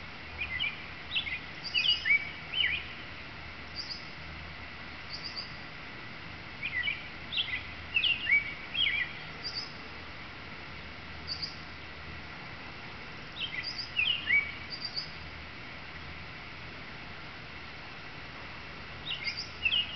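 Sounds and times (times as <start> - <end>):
bird singing whistled phrases: 0.4 - 2.9, 6.6 - 9.7, 13.4 - 15.1, 19.1 - 19.9.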